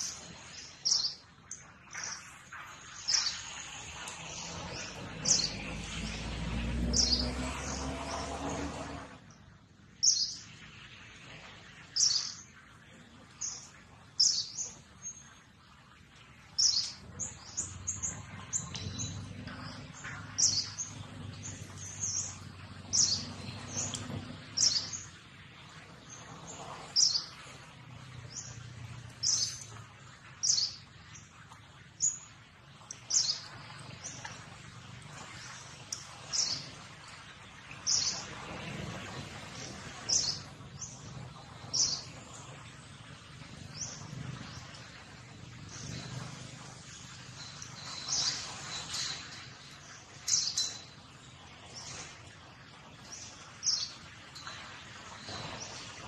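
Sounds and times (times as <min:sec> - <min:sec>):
low rumble with rising hum: 0:02.8 - 0:11.2, 0:17.0 - 0:25.1
small bird chirping: 0:16.6 - 0:25.2, 0:45.6 - 0:49.6.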